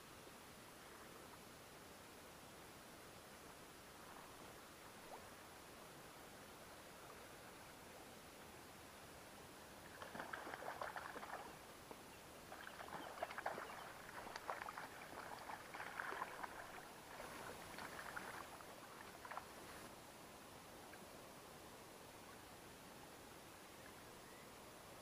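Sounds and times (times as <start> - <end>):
water splashing and sloshing: 9.8 - 11.6, 12.5 - 19.9.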